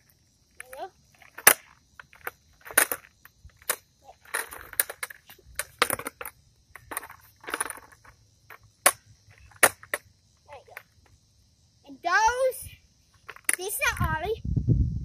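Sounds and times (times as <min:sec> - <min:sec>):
skateboard clacks on concrete: 0:00.6 - 0:10.1.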